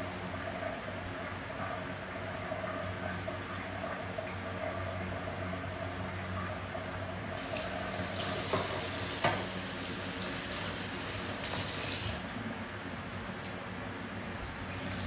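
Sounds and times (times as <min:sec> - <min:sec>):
tap water running into sink: 0:06.8 - 0:12.4.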